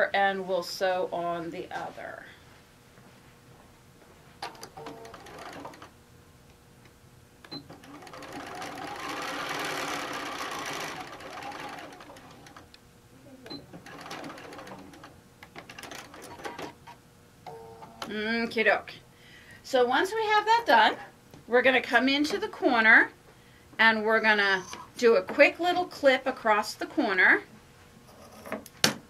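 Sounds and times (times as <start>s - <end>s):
sewing machine stitching: 4.5s - 5.9s, 7.7s - 12.7s, 13.5s - 17.0s.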